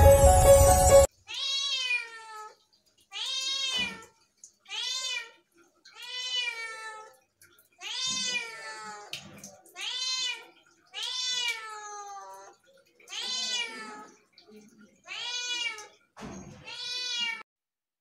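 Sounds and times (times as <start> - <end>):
intro music: 0.0 - 1.1
kitten meowing: 16.6 - 17.4.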